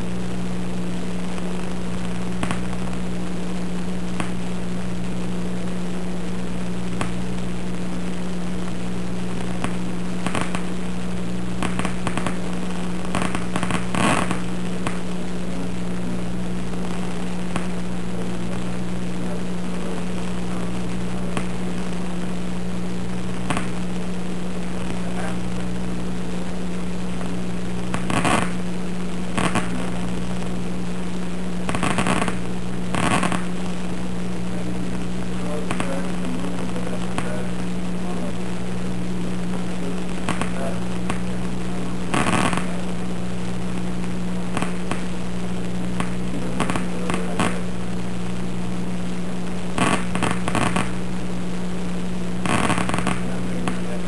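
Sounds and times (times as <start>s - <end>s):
crackling clicks: 0.0s - 54.0s
steady electrical hum: 0.0s - 54.0s.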